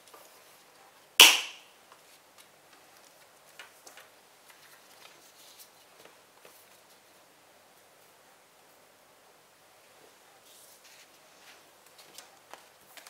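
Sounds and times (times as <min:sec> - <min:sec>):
paper rustling and tapping: 0:11.8 - 0:13.0.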